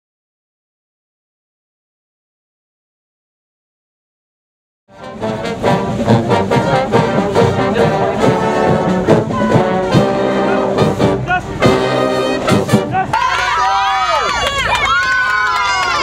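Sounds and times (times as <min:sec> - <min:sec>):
marching band playing: 0:04.9 - 0:13.3.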